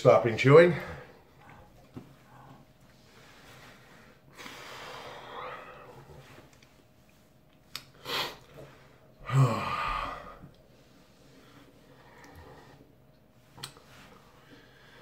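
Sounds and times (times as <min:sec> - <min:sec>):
man breathing hard: 0:02.2 - 0:06.2, 0:07.9 - 0:12.9, 0:14.3 - 0:15.0
man sighing: 0:09.2 - 0:10.4.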